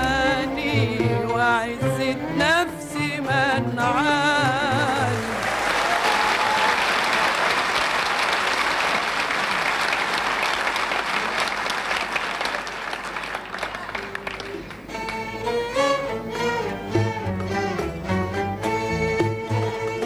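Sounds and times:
audience applauding: 5.0 - 15.6
orchestra playing ornamented melody: 14.2 - 20.0.

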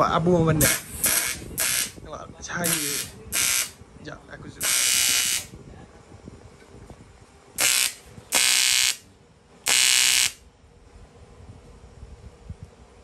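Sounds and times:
welding arc buzzing: 0.6 - 3.8, 4.6 - 5.5, 7.6 - 9.0, 9.6 - 10.4.

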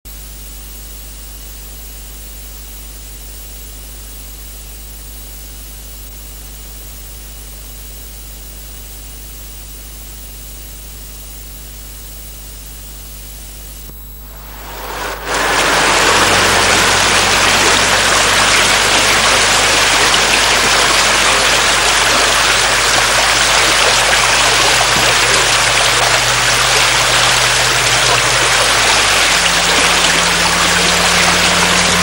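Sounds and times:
steady hiss: 12.7 - 32.0
low hum: 12.9 - 32.0
rushing noise: 14.1 - 32.0.

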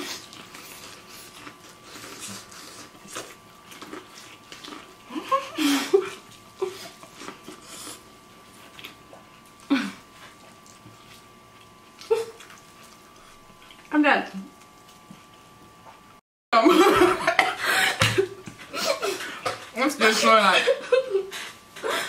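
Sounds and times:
people chewing corn on the cob: 0.0 - 13.9, 14.5 - 16.1.

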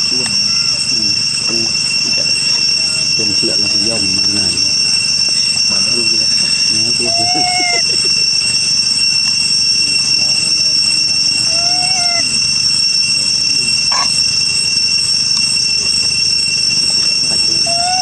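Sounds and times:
macaque coo call: 0.0 - 8.8, 11.3 - 12.7, 13.5 - 14.4, 17.3 - 18.0
cicadas droning: 0.0 - 18.0.

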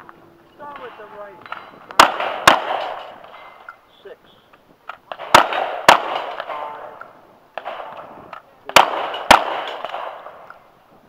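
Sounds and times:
shotgun shots echoing: 0.7 - 3.7, 5.1 - 7.0, 7.6 - 10.5.

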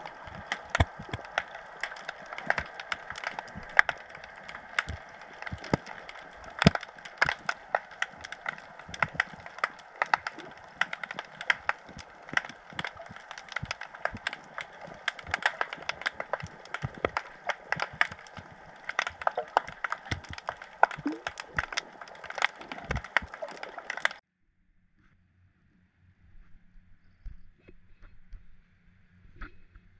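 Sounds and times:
snapping shrimp crackle: 0.0 - 24.2
steady underwater hiss: 0.0 - 24.2.

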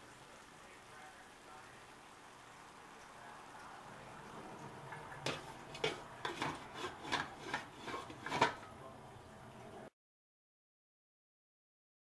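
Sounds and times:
faint steady sizzle: 0.0 - 9.9
utensil scraping metal pan: 5.2 - 8.8.

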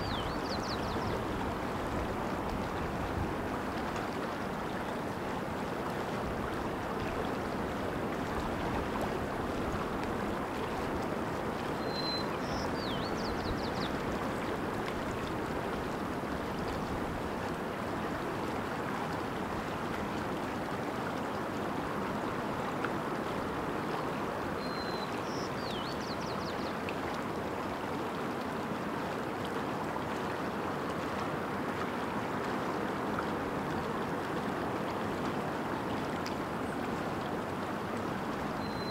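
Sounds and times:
songbird singing: 0.0 - 1.2, 11.8 - 14.0, 24.6 - 26.7, 38.6 - 38.9
stream running over rocks: 0.0 - 38.9.

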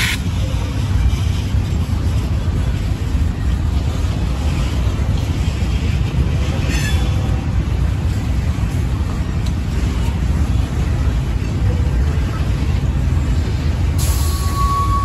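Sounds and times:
diesel locomotives rumbling: 0.0 - 15.0
high squeal: 14.0 - 15.0.

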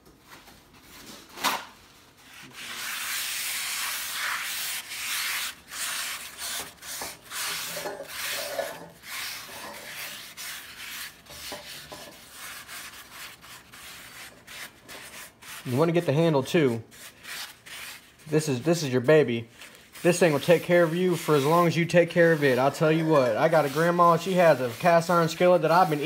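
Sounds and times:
paper towel scrubbing a skillet: 2.2 - 26.0.

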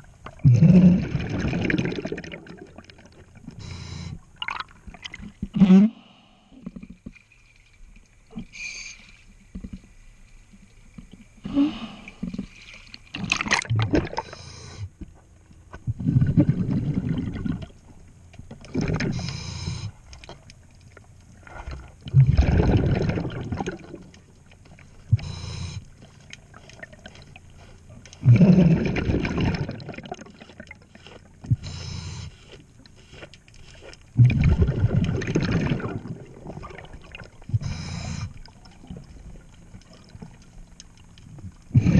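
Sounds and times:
rumble of exhaled bubbles: 0.0 - 7.1, 11.0 - 15.0, 15.7 - 19.3, 21.2 - 31.8, 34.1 - 41.9
regulator inhale hiss: 3.6 - 4.2, 14.2 - 14.9.

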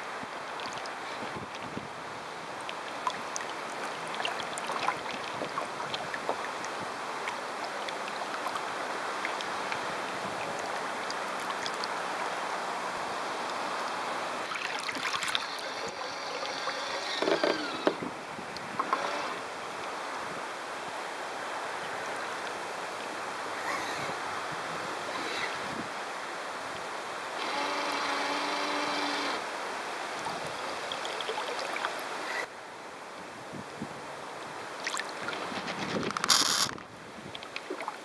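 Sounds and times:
water rushing along a hull: 0.0 - 38.0
small splashes and ticks: 0.5 - 1.7, 2.6 - 12.4, 14.4 - 17.8, 34.8 - 38.0.

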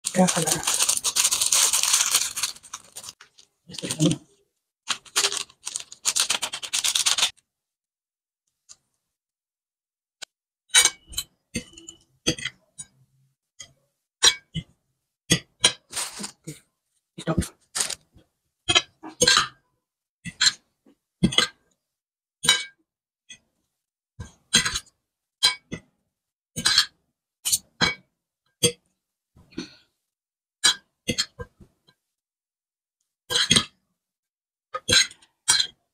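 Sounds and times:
plastic sachets rustling and crinkling: 0.0 - 4.3, 4.9 - 7.4, 15.9 - 16.6, 17.7 - 18.1.

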